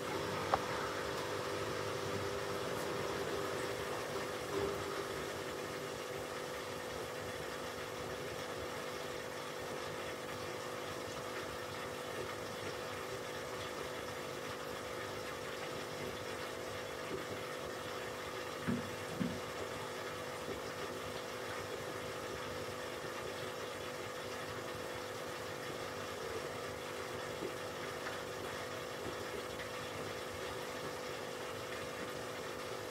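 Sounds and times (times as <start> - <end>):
air pump humming: 0.0 - 8.6.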